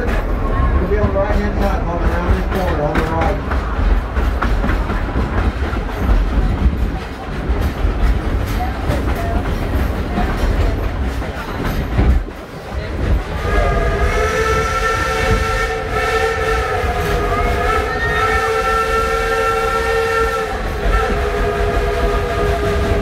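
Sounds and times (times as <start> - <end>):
train cars rumbling and clattering: 0.0 - 23.0
steam whistle blowing: 13.4 - 23.0.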